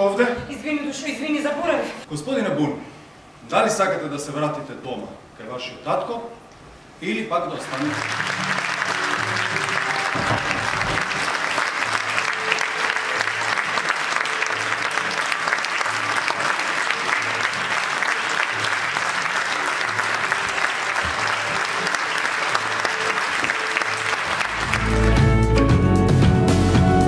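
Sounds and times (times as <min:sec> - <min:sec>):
audience applauding: 0:07.6 - 0:25.7.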